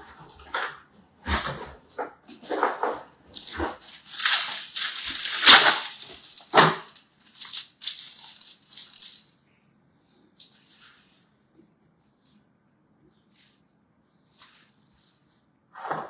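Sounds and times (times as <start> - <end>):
baking paper crinkling: 0.1 - 9.6.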